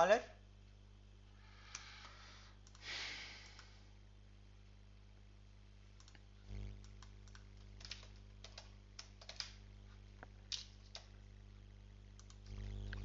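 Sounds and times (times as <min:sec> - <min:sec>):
steady low hum: 0:00.0 - 0:13.0
keyboard typing clicks: 0:06.8 - 0:09.6, 0:12.2 - 0:12.6.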